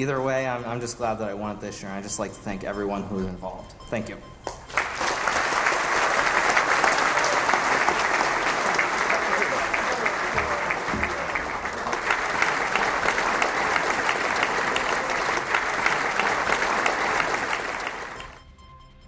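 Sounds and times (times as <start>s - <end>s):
crowd applauding: 4.5s - 18.4s.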